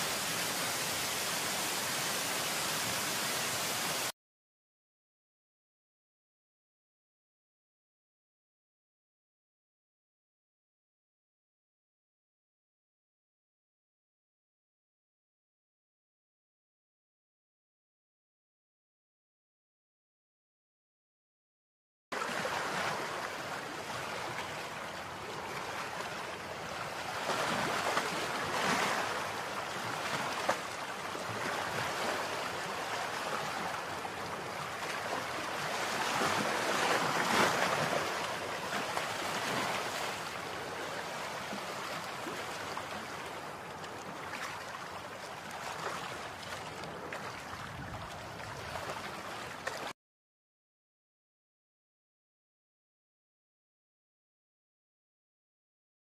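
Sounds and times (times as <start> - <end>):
running water rushing: 0.0 - 4.1, 22.2 - 49.9.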